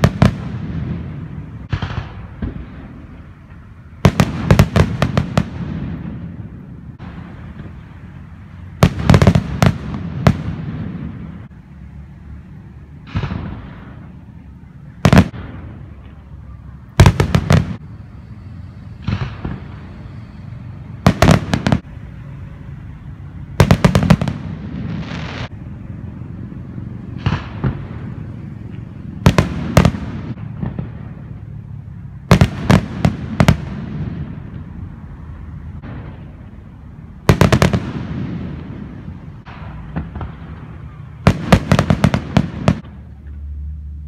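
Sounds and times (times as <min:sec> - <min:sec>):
firework hissing: 0:17.0 - 0:22.9.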